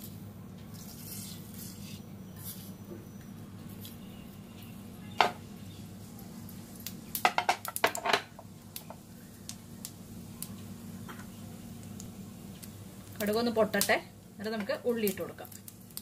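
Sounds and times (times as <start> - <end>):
steady low hum: 0.0 - 16.0
mustard seeds popping in oil: 3.2 - 16.0.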